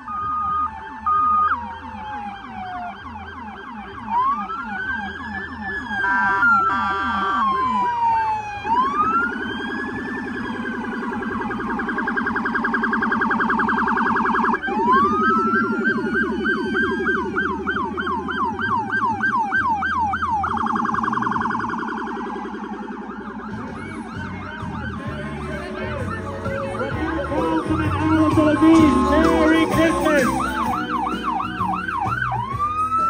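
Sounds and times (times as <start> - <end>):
police sirens wailing: 0.0 - 33.0.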